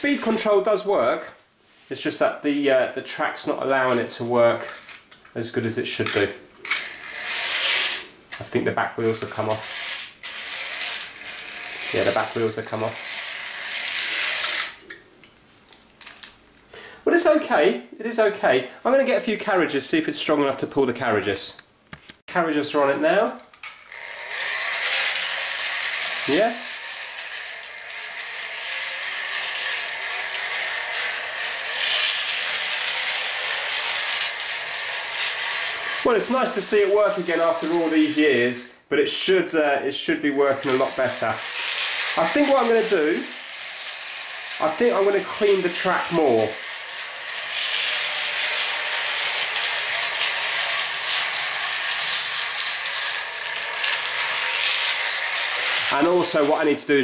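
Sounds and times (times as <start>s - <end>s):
model train motor whir: 6.6s - 8.1s, 9.4s - 14.8s, 23.5s - 38.4s, 40.3s - 56.6s.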